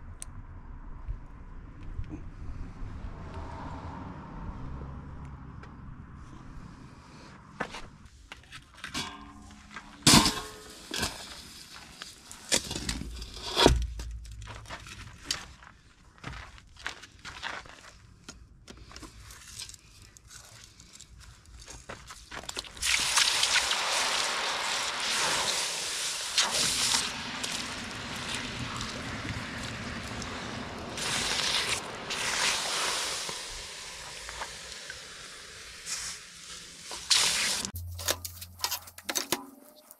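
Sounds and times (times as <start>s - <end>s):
metal tools clinking in sand: 8.8s - 13.4s
hot metal hissing in water: 22.8s - 37.7s.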